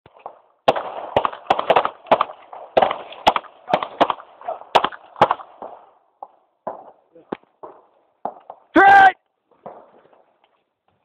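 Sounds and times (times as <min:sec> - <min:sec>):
pistol shots: 0:00.1 - 0:07.0.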